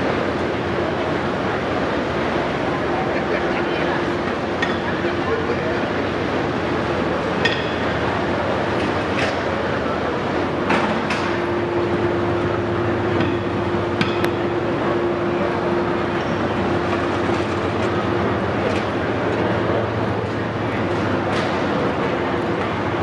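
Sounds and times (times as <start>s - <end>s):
steady hum: 0.0s - 23.0s.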